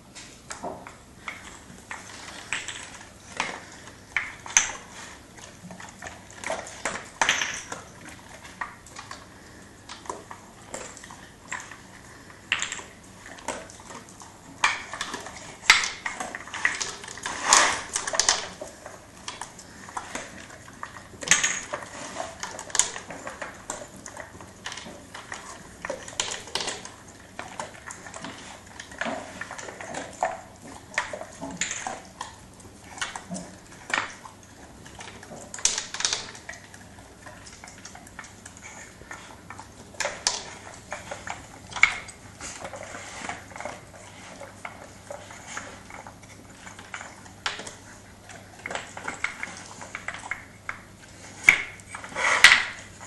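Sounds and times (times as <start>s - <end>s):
wooden pegs dropping on tile floor: 7.2s - 7.8s, 21.3s - 21.8s
wooden toy and bowl sliding on tiles: 16.5s - 18.6s, 42.5s - 44.4s.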